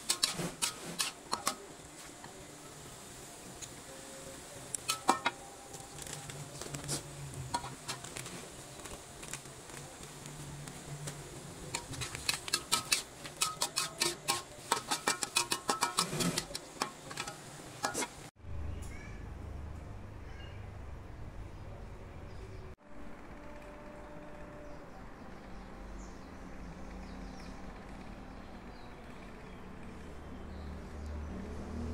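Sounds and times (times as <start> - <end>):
metal spatula scraping wok: 0.0 - 2.2, 4.7 - 8.7, 11.6 - 18.3.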